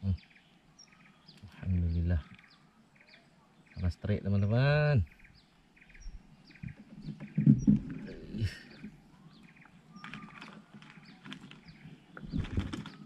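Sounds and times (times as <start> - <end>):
birds chirping: 0.0 - 13.0
knocks in wooden boat: 6.6 - 8.1.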